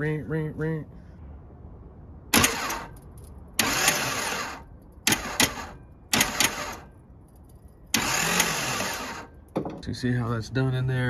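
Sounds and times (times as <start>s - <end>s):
engine cranking whir: 2.3s - 7.0s, 7.9s - 9.5s
starter motor click: 2.4s - 2.9s, 3.6s - 6.8s, 7.9s - 9.3s.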